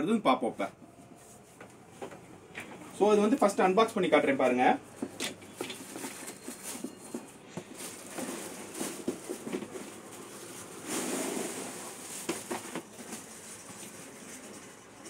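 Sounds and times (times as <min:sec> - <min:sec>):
plastic wrapping crinkling: 0:05.0 - 0:14.8.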